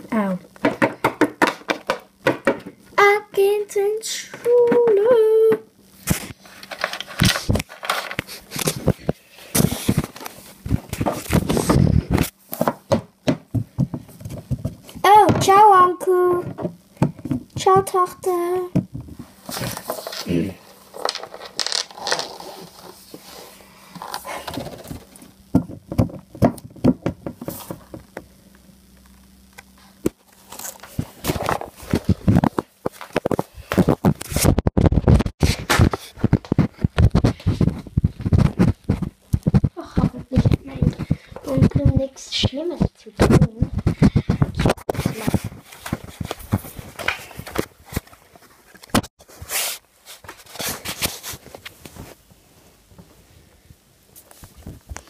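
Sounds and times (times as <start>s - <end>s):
plastic toy knocking on paper floor: 0.6s - 2.7s.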